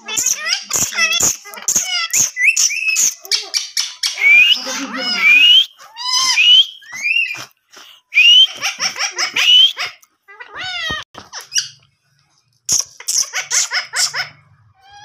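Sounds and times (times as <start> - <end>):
parakeets shrill calls: 0.0 - 7.5, 12.7 - 15.0.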